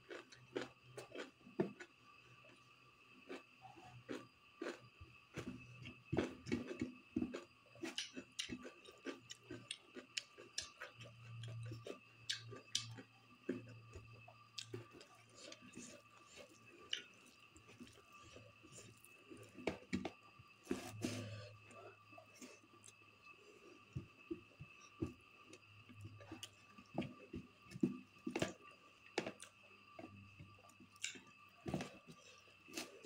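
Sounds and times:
faint high whine: 0:01.3 - 0:33.0
chewing and mouth noises: 0:03.3 - 0:05.6, 0:06.2 - 0:19.6.

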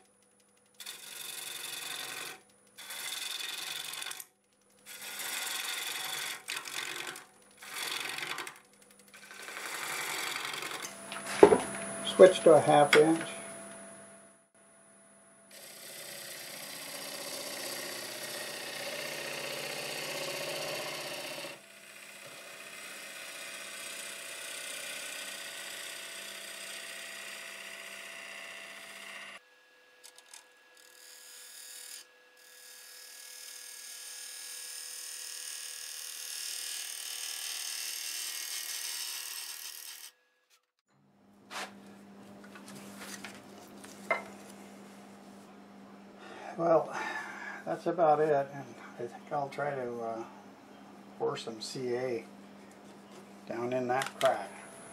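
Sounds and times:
lathe tool scraping wood: 0:00.8 - 0:04.3, 0:04.9 - 0:13.9, 0:15.5 - 0:29.4.

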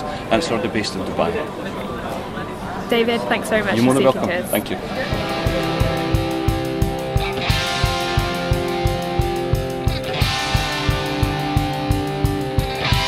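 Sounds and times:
background music with steady beat: 0:05.0 - 0:13.0.

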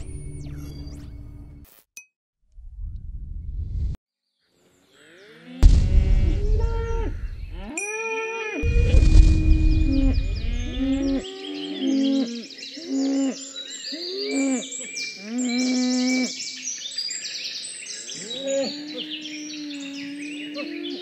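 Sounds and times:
low rumble: 0:02.6 - 0:04.0, 0:05.6 - 0:07.6, 0:08.6 - 0:11.2
cattle mooing: 0:05.4 - 0:07.8
faint bird chirps: 0:08.6 - 0:21.0.

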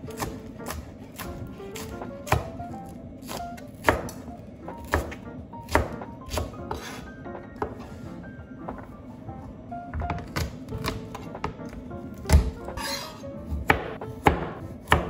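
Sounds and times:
knife chopping on plastic board: 0:00.0 - 0:07.0, 0:10.0 - 0:12.7, 0:13.5 - 0:15.0
quiet background music: 0:00.0 - 0:15.0.

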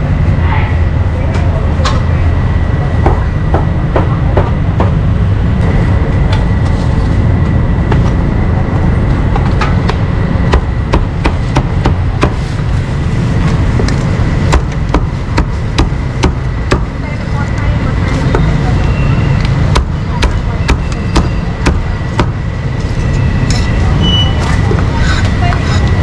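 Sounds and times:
steady low rumble: 0:00.0 - 0:26.0
cleaver chopping meat: 0:14.5 - 0:16.9, 0:19.7 - 0:22.4.

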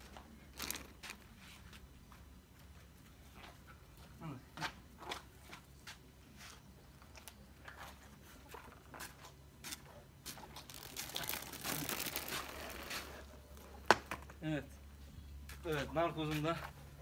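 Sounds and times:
crinkling and rustling: 0:00.0 - 0:03.7, 0:06.4 - 0:14.3.

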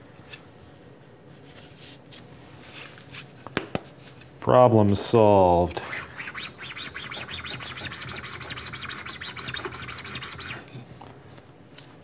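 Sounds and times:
hand tool scraping aluminum: 0:05.9 - 0:10.8.

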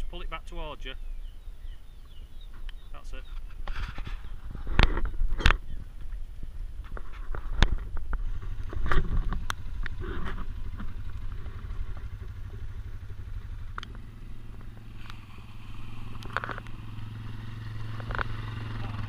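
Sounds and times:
quad bike engine running: 0:07.3 - 0:19.0.

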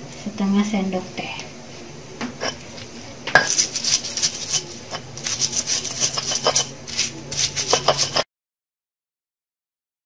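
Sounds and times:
stone pestle grinding in mortar: 0:03.4 - 0:08.2.

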